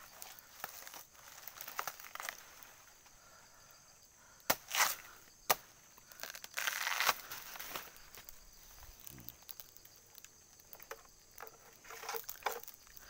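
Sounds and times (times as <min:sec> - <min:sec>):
rustling of leaves: 0:00.0 - 0:03.7, 0:04.6 - 0:13.0
machete chopping into plant trunk: 0:04.5 - 0:07.3.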